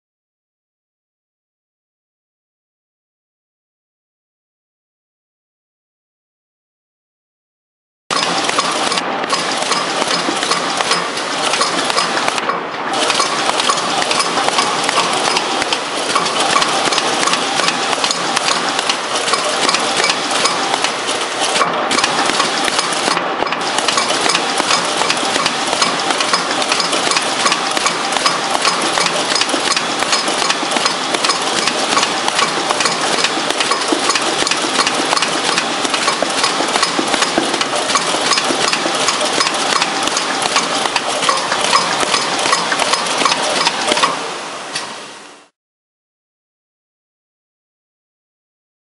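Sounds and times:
machine metallic clatter: 8.1 - 45.0.

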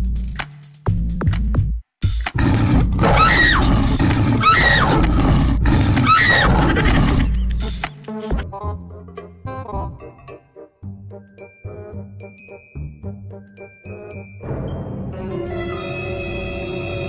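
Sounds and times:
music: 0.0 - 2.4, 7.3 - 17.0
tiger roaring: 2.4 - 7.5.

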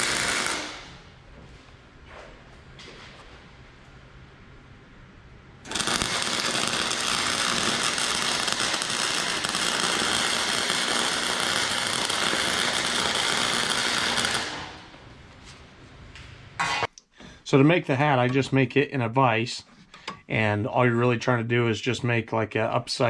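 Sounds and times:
welding arc crackling: 0.0 - 1.1, 5.6 - 15.2.

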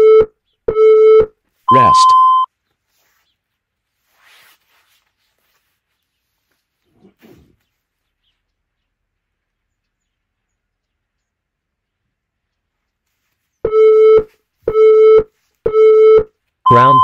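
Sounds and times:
timer countdown beeps: 0.0 - 2.5, 13.7 - 17.0
faint rustle: 2.6 - 8.9, 12.5 - 13.6.

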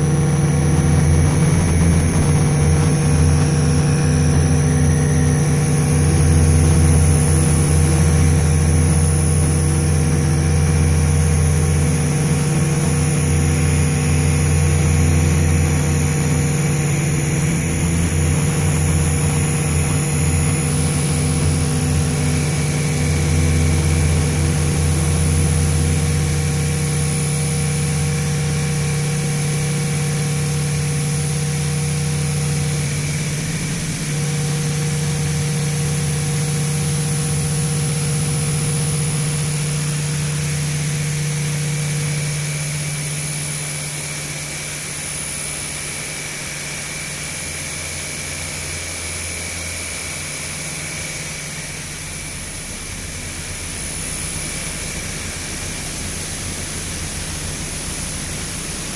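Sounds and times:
low hums: 0.0 - 27.8
electronic drone: 0.0 - 58.9.

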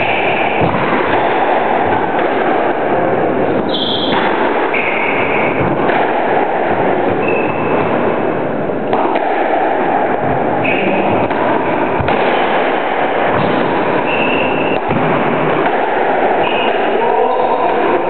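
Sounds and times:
high squeaks: 3.7 - 5.5.

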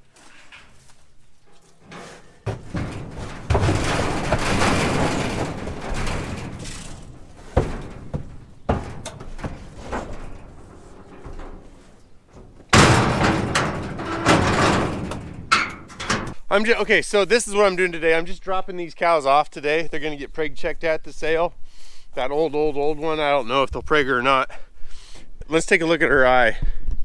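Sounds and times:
hooves clattering on trailer floor: 0.0 - 16.5
trailer rattling: 1.8 - 16.6
sharp knocks: 2.4 - 16.4
loud bang: 12.4 - 15.9.

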